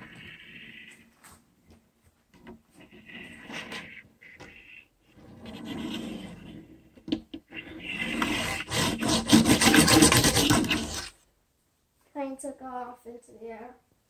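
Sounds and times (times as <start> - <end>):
rubbing and scraping on microphone: 0.0 - 1.4, 2.4 - 11.2
fast rasping rush: 7.9 - 11.1.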